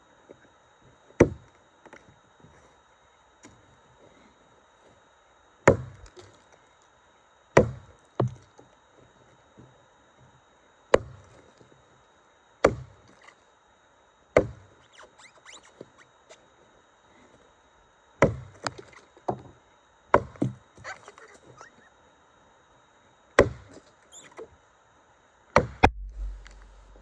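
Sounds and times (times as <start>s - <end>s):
axe chopping into log: 1.2s - 1.4s, 5.7s - 6.3s, 7.6s - 8.4s, 11.0s - 11.2s, 12.6s - 12.9s, 14.4s - 14.6s, 18.2s - 18.8s, 20.2s - 20.6s, 23.4s - 23.8s, 25.6s - 26.6s.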